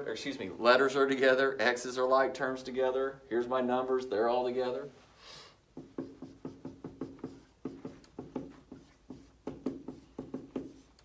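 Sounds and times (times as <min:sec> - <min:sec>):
marker writing on whiteboard: 0:05.7 - 0:11.0.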